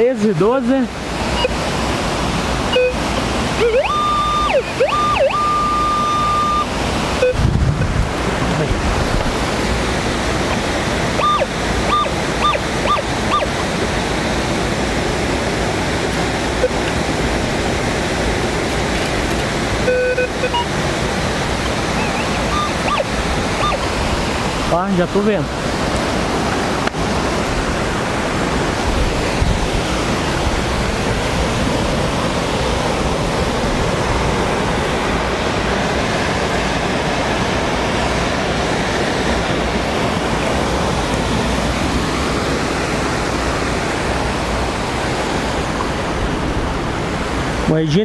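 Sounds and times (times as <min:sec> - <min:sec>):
stream water rushing: 0:00.0 - 0:48.0
metal detector beeping: 0:01.4 - 0:01.6, 0:02.7 - 0:03.0, 0:03.6 - 0:07.4, 0:11.2 - 0:13.5, 0:19.8 - 0:20.7, 0:21.6 - 0:23.9.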